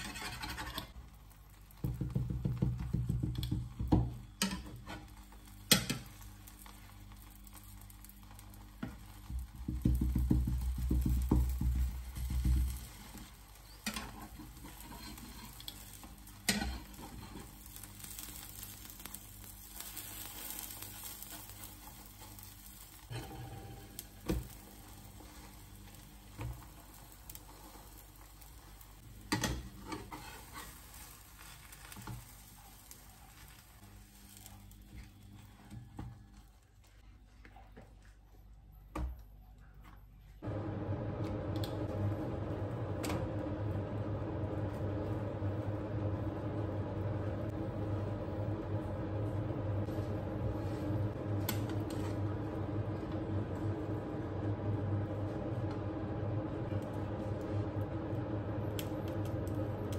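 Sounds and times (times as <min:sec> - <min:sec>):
spatula scraping and tapping pan: 0:00.0 - 0:01.0, 0:01.7 - 0:07.6, 0:08.3 - 0:19.0, 0:19.7 - 0:33.5
omelette sizzling in frying pan: 0:00.0 - 0:36.7, 0:40.4 - 0:59.9.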